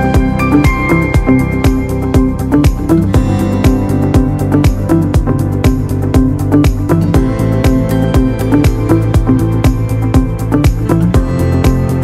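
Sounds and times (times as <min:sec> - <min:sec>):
electronic music with steady beat: 0:00.0 - 0:12.0.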